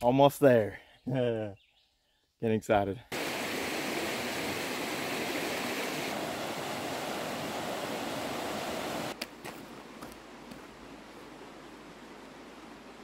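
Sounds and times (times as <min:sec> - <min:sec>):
river rushing over rapids: 0:03.2 - 0:09.2.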